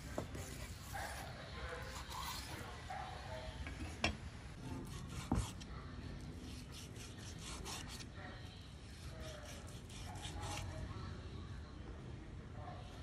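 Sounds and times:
cleaver slicing meat: 9.2 - 10.7.

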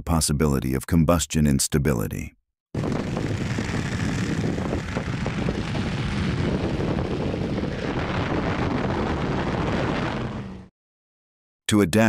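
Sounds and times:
rocket engine exhaust roar: 2.8 - 10.7.

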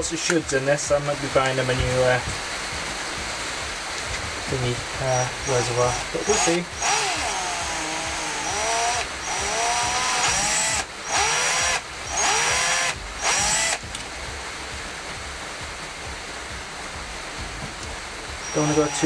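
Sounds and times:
cordless drill boring into screw: 5.2 - 13.8, 18.4 - 19.0.

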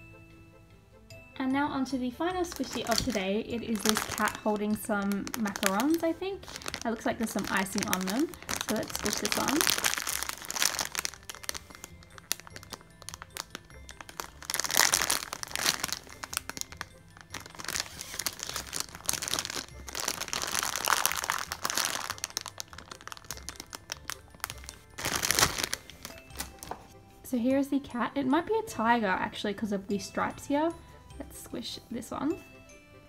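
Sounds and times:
background music: 0.0 - 33.0
plastic bag crinkling: 2.3 - 26.8.

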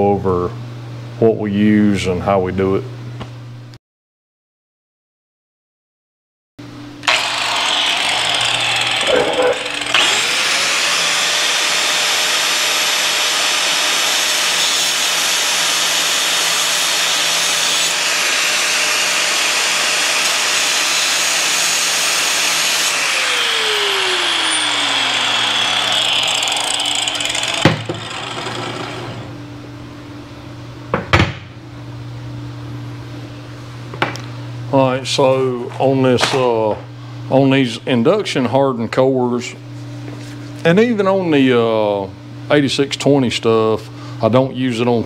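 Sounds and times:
angle grinder grinding metal: 7.0 - 29.4.

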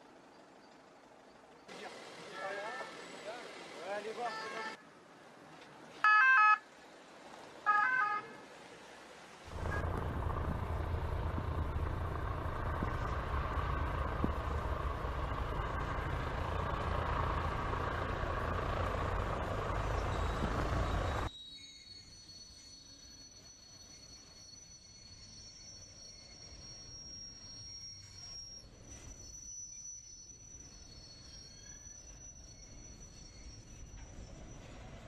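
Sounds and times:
vehicle two-tone warning blasts: 4.2 - 4.8, 9.5 - 21.3
helicopter engine and rotor: 9.5 - 21.3.

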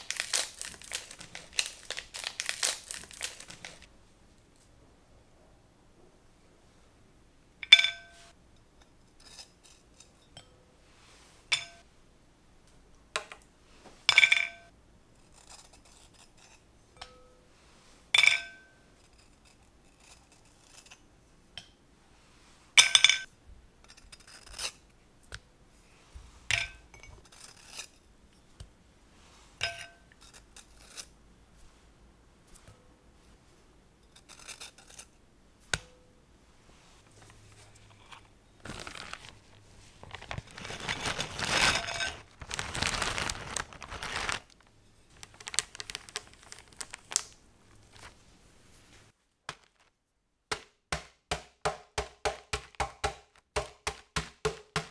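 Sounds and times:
glass dishes clinking: 7.6 - 8.2.

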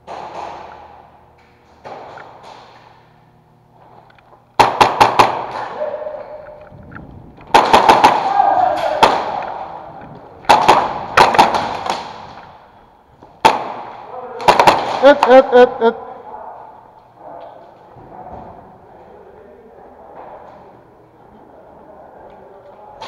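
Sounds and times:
airsoft guns firing: 0.0 - 1.1, 4.6 - 6.0, 7.4 - 12.6, 13.4 - 15.5.

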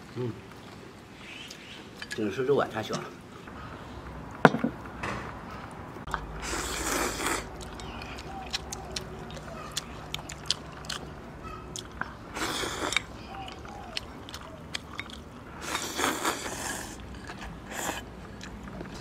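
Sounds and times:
chewing and smacking: 6.1 - 19.0
man slurping noodles: 6.4 - 7.5, 12.3 - 13.1, 15.6 - 18.1.

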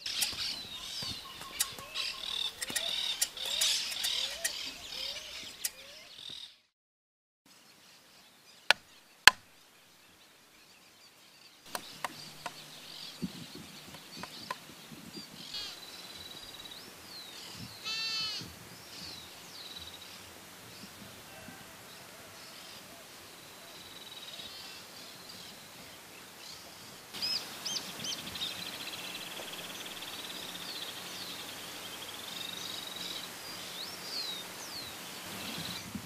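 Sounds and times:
birds chirping and calling: 0.0 - 6.6, 11.7 - 20.2, 26.5 - 36.0.

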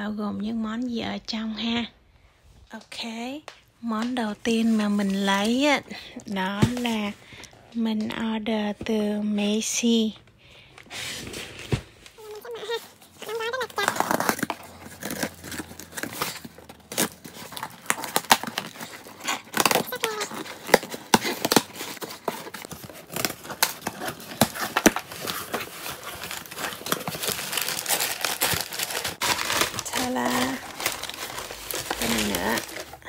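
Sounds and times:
packing paper rustling: 10.6 - 33.0.

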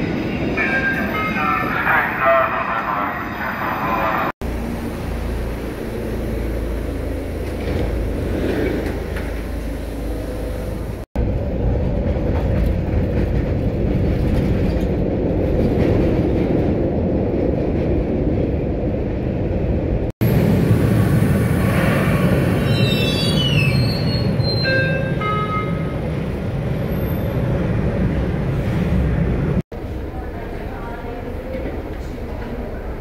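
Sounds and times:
subway train on tracks: 0.0 - 33.0.

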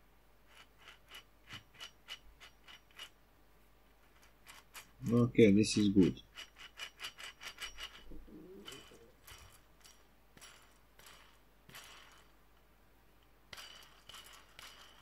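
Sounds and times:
bicycle hub rasping clicks: 0.5 - 3.2, 6.1 - 12.3, 13.5 - 15.0.

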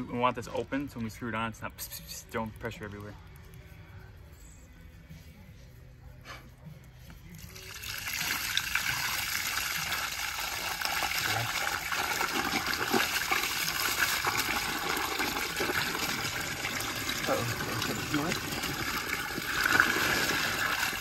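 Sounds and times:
water spraying and splashing: 7.5 - 21.0.

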